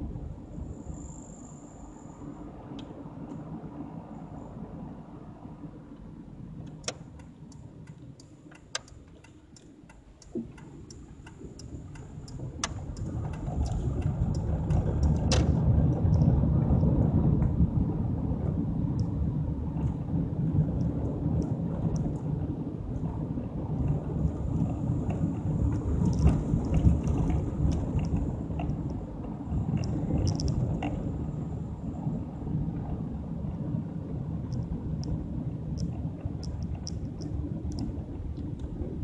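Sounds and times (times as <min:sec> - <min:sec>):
car engine and road rumble: 0:00.0 - 0:39.0
car turn signal clicking: 0:06.6 - 0:16.3.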